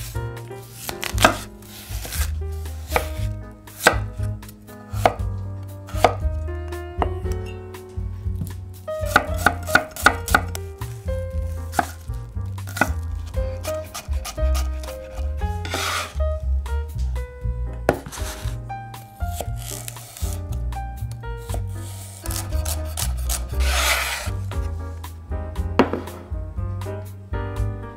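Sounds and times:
knife chopping on wooden board: 0.8 - 4.3, 4.9 - 5.3, 5.9 - 6.3, 8.4 - 10.6, 11.7 - 12.1, 12.7 - 16.2, 17.9 - 18.6, 21.5 - 24.4, 25.8 - 26.2.

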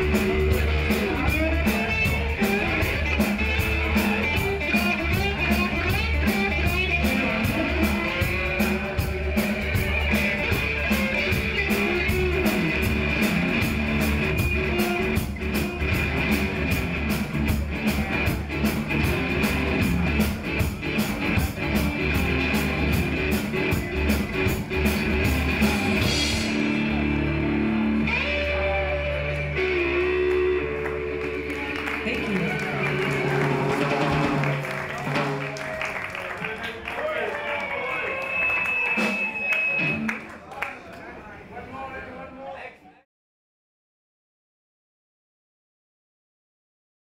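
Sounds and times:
drum kit cymbal beat: 0.0 - 27.1
electric bass: 0.0 - 35.4
electric guitar: 0.0 - 40.4.

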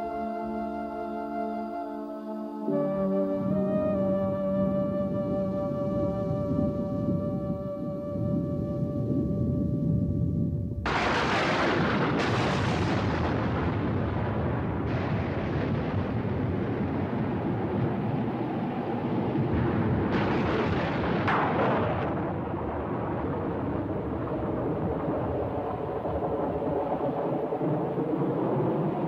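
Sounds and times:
thunder cracking and rumbling: 6.5 - 29.0.

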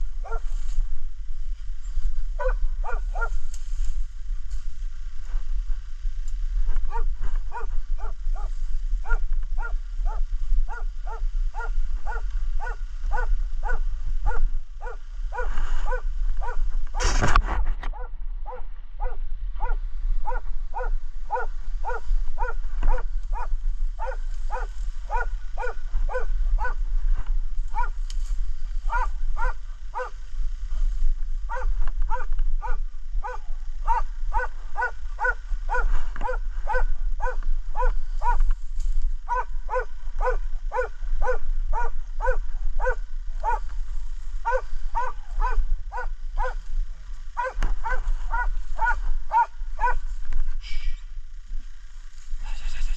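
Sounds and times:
dog barking: 0.2 - 0.6, 2.4 - 3.4, 6.9 - 17.0, 17.9 - 26.9, 27.7 - 28.0, 28.8 - 30.2, 31.5 - 38.5, 39.3 - 43.7, 44.4 - 46.6, 47.4 - 50.0.

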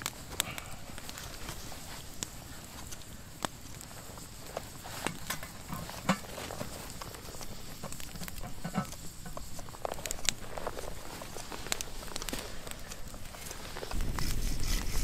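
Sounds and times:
campfire crackling and popping: 0.0 - 15.0
metal cook pot handled: 8.2 - 9.4.

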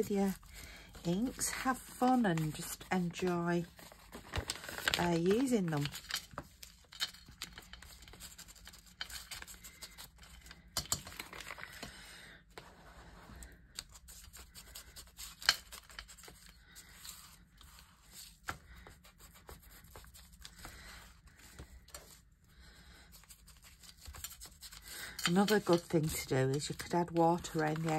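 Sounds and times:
paper crinkling and rustling: 0.0 - 11.9, 13.8 - 22.2, 23.1 - 27.9.

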